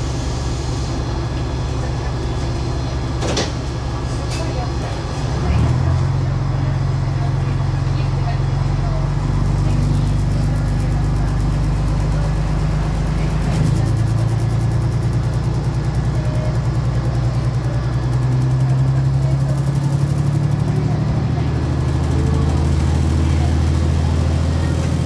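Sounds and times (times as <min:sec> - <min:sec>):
diesel train engine running: 0:00.0 - 0:25.0.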